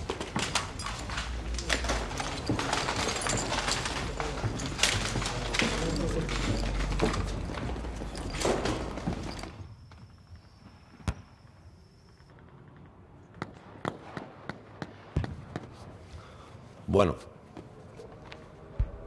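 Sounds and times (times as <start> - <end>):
crowd shuffling and jostling: 0.0 - 9.7.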